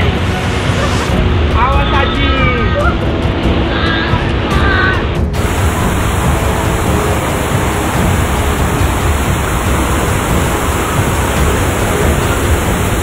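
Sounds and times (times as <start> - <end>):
flood water rushing: 5.4 - 13.0.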